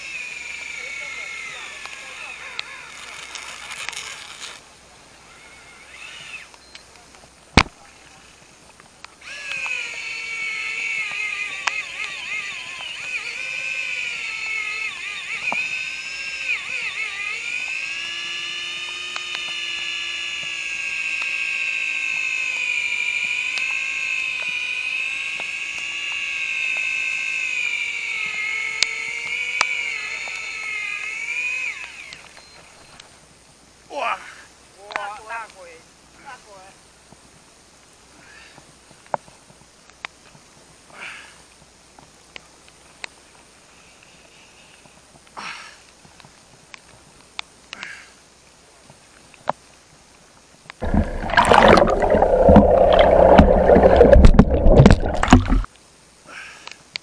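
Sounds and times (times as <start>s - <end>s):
fishing reel drag screaming: 0.0s - 4.6s, 5.2s - 6.5s, 9.2s - 32.3s.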